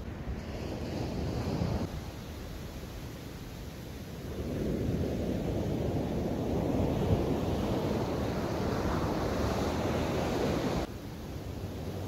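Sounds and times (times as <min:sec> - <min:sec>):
wind buffeting microphone: 0:04.2 - 0:12.0
ocean surf breaking: 0:04.4 - 0:10.9.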